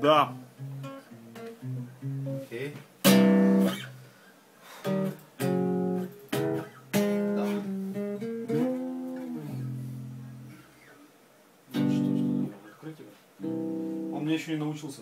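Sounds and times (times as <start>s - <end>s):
electric bass guitar notes: 3.0s - 3.9s, 4.9s - 10.7s, 11.7s - 12.6s.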